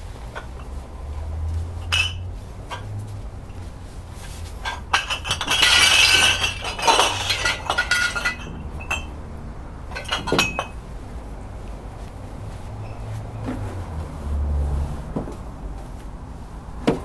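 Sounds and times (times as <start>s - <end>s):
glass bottles clinking together: 1.8s - 2.9s, 4.6s - 9.2s, 9.9s - 10.8s.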